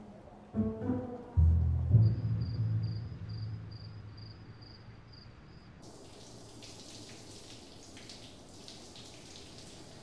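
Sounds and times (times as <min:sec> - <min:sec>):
soft music with pulsing tone: 0:00.4 - 0:03.5
faint rain falling: 0:05.3 - 0:10.0.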